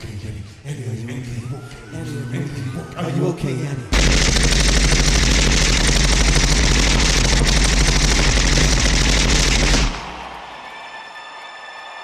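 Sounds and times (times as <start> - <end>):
machine-gun fire: 3.9 - 10.4.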